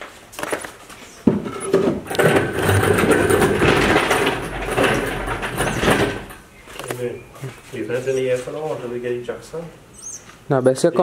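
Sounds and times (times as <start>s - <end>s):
metallic rattling and scraping: 1.3s - 7.0s.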